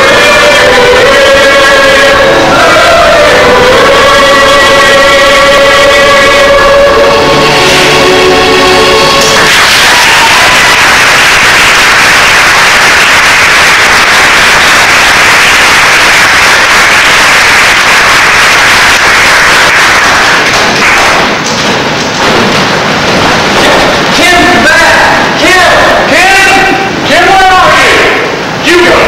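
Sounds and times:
audience applauding: 9.2 - 22.4.

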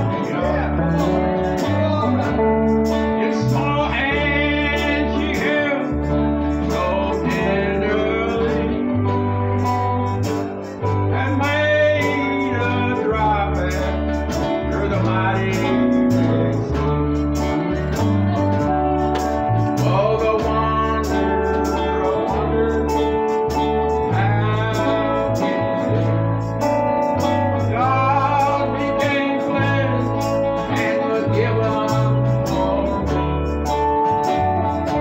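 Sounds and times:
bass line: 0.0 - 35.0
keyboard: 0.0 - 35.0
strummed acoustic guitars: 0.0 - 35.0
people singing: 3.2 - 9.2, 19.8 - 26.2, 27.6 - 33.4.

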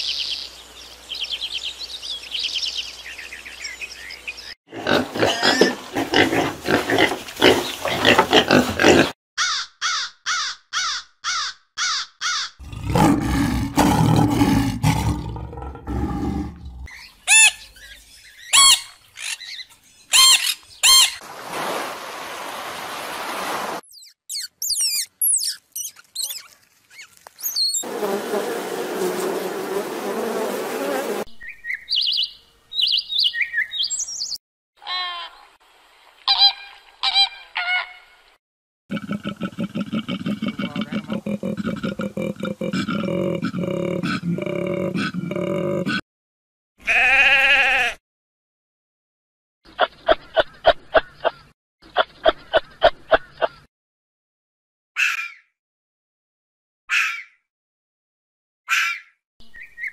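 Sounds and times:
deep animal roar: 4.7 - 9.2, 12.6 - 16.9, 38.9 - 46.0
pigs squealing: 4.7 - 16.6
parrots whistling and chirping: 18.4 - 21.2, 23.9 - 27.8.

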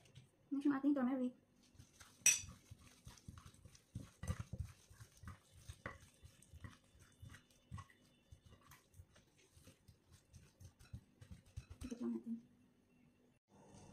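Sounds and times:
wet pats and squelches of meat: 1.6 - 12.0.

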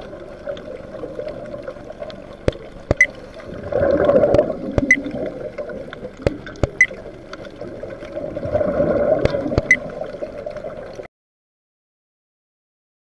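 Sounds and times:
underwater exhaled bubbles: 0.0 - 11.1
sharp clicks: 2.4 - 3.2, 4.2 - 5.1, 5.9 - 7.5, 9.2 - 9.8.

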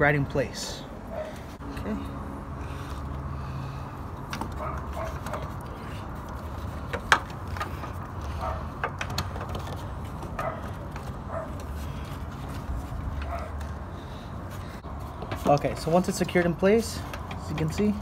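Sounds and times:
plastic parts clicking and knocking: 6.8 - 8.0, 8.7 - 11.2, 17.0 - 18.0.

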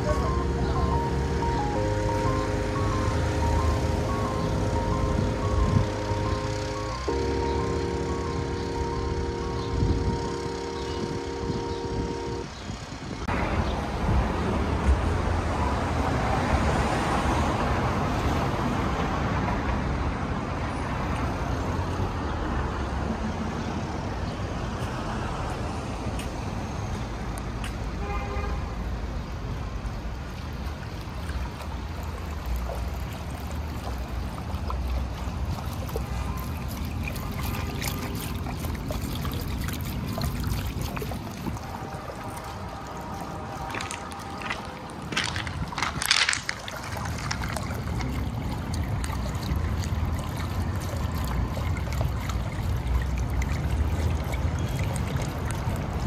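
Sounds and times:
street traffic: 0.0 - 56.0
fountain water splashing over pebbles: 29.9 - 56.0.

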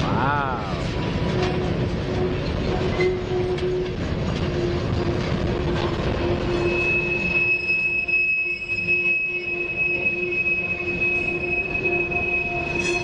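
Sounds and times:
train wheels rumbling and clicking: 0.0 - 13.0
higher wheel squeal: 1.3 - 4.0, 6.1 - 13.0
wheel squeal: 6.2 - 13.0.

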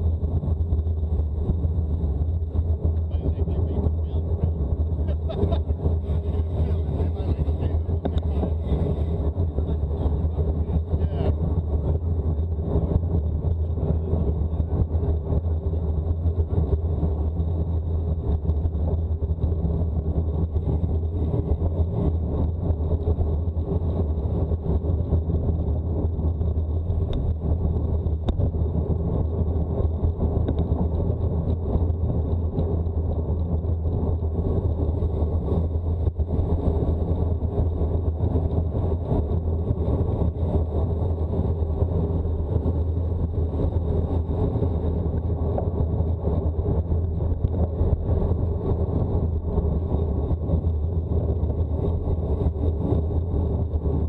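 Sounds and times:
moving vehicle rumble: 0.0 - 54.0.

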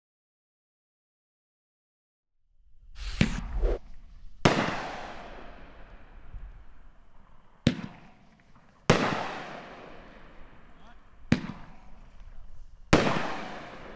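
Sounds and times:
firework bangs with echo: 3.0 - 12.3, 12.9 - 13.9.

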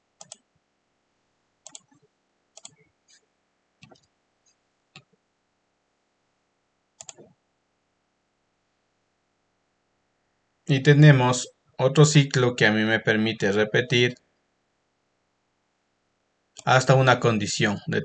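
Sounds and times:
computer mouse clicks: 0.2 - 0.4, 1.6 - 2.0, 2.6 - 3.2, 3.8 - 4.1, 7.0 - 7.3.

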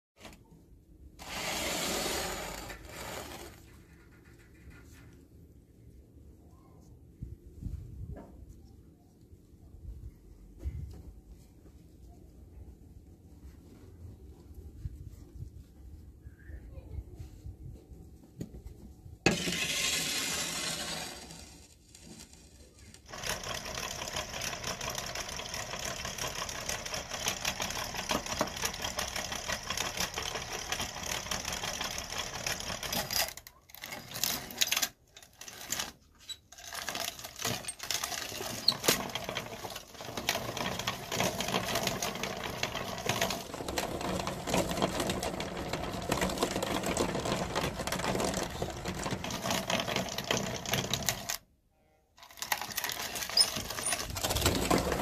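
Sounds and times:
hand-cranked meat grinder rattling: 23.1 - 51.4, 52.2 - 55.0.

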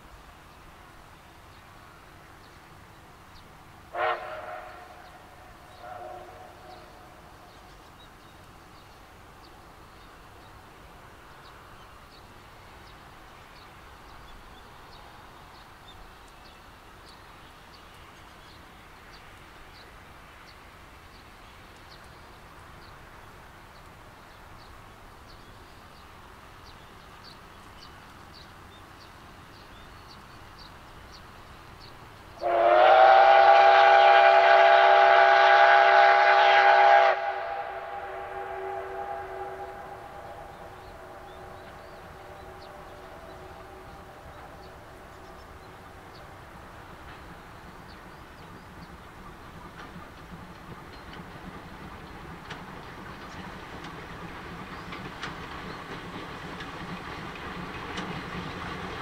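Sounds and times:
distant train running: 0.0 - 59.0
distant steam whistle: 3.9 - 7.3, 32.4 - 45.3.

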